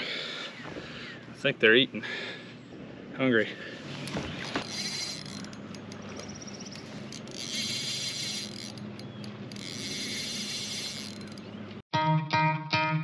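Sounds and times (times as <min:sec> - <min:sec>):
fishing reel ratcheting: 0:04.6 - 0:11.5.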